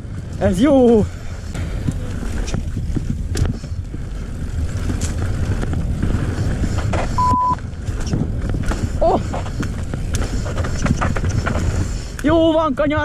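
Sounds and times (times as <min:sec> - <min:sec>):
bike rattling over rough ground: 0:00.0 - 0:13.0
bike tyre noise: 0:00.0 - 0:13.0
wind on microphone: 0:00.0 - 0:13.0
short steady beep: 0:07.2 - 0:07.6.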